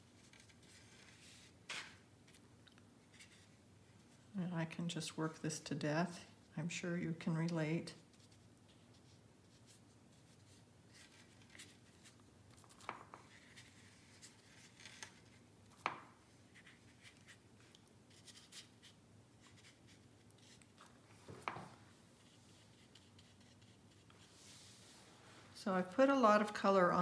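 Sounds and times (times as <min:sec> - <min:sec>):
brush strokes on paper: 0:22.0 - 0:25.6.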